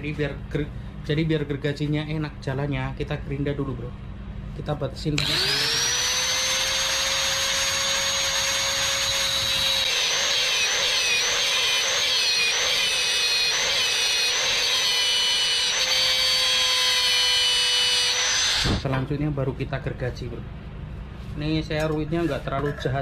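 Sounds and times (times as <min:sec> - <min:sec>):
angle grinder grinding metal rod: 0:05.2 - 0:18.9.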